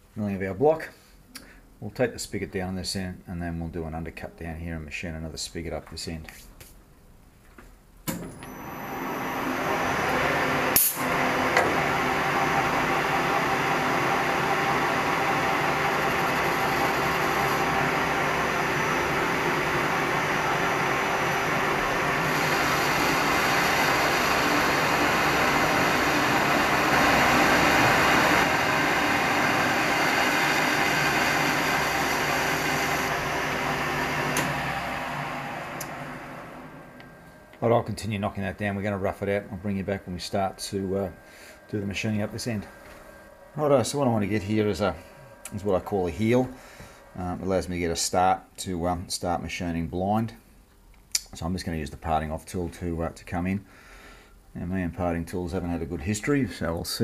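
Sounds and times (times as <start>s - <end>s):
metal lathe cutting steel: 8.4s - 48.3s.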